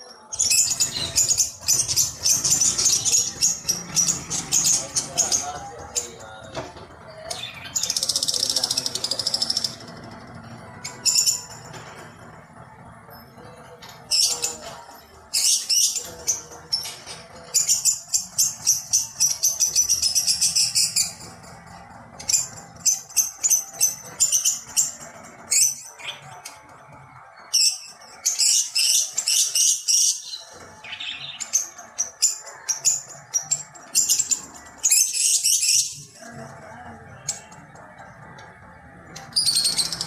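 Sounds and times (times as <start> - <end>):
small birds chirping: 0.0 - 9.8
faint background music: 0.0 - 40.0.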